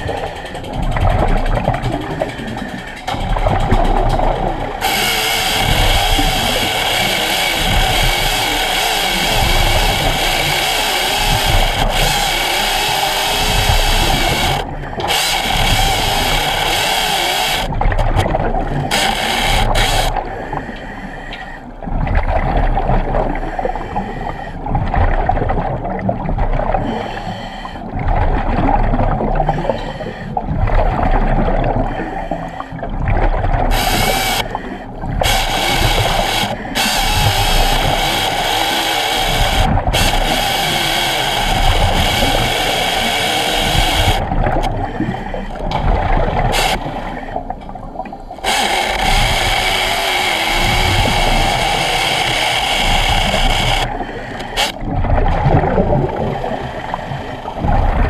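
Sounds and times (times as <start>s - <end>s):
hydraulic chainsaw whine: 2.2s - 17.7s, 18.8s - 20.2s, 33.7s - 34.5s, 35.2s - 44.2s, 46.5s - 46.8s, 48.4s - 54.8s
chainsaw cutting hiss: 33.8s - 34.5s.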